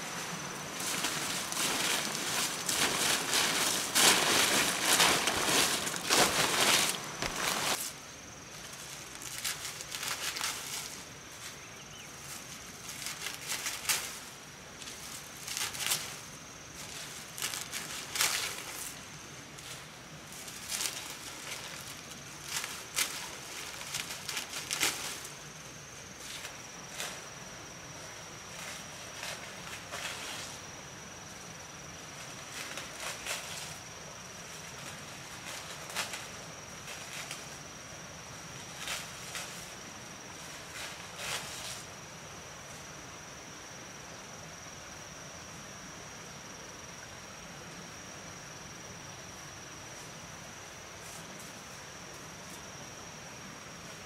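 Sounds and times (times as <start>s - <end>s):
dry palm leaves rustling: 0.0s - 42.8s.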